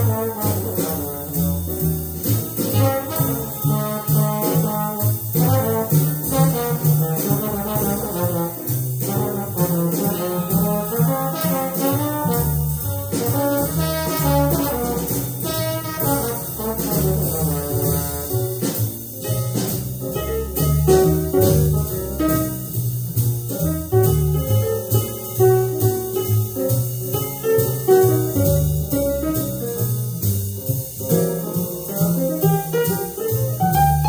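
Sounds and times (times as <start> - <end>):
trombone solo: 0.0 - 18.8, 20.2 - 22.7
jazz rhythm section: 0.0 - 34.0
walking bass: 0.0 - 34.0.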